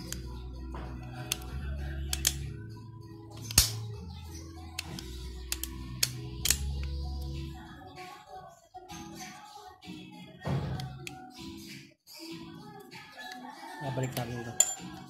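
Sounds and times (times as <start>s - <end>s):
background music low notes: 0.0s - 15.0s
circuit breaker parts clicking: 1.2s - 2.5s, 3.4s - 3.8s, 4.8s - 6.8s.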